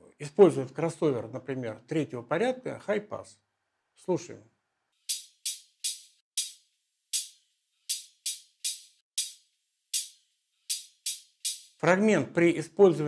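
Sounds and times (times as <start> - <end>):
thin clicky percussion hits: 5.1 - 11.8.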